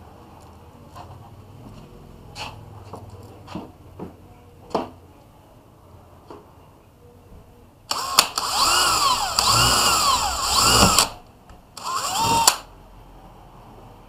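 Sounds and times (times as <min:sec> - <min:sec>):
cordless drill boring into wall: 0:07.9 - 0:11.2, 0:11.8 - 0:12.7.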